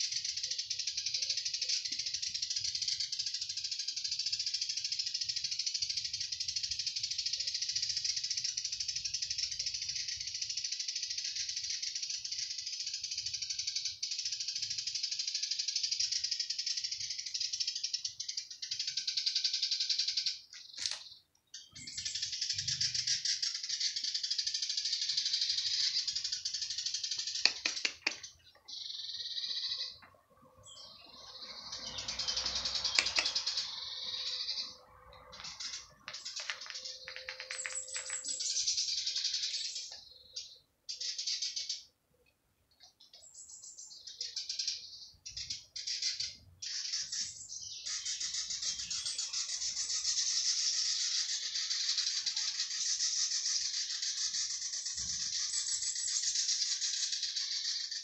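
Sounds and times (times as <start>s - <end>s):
cicadas buzzing: 0.0s - 21.0s, 21.8s - 39.9s, 45.2s - 58.0s
sharp clicks: 20.6s - 21.2s, 27.2s - 28.3s, 32.8s - 33.6s, 35.3s - 38.3s.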